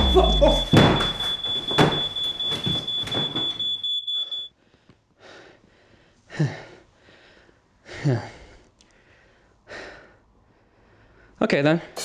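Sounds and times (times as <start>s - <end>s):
smoke alarm tone: 0.0s - 4.5s.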